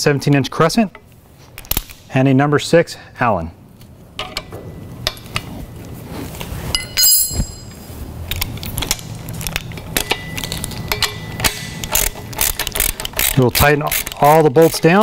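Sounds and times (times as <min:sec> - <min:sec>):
bright ringing metal clink: 0:06.7 - 0:07.9
metal clinks and taps: 0:06.8 - 0:07.8.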